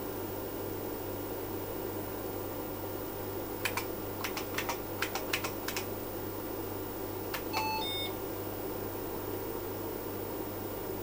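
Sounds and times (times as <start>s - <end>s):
computer fan hum: 0.0s - 11.0s
keyboard keystrokes: 3.6s - 5.9s, 7.3s - 8.1s
short electronic beep tones: 7.5s - 8.2s.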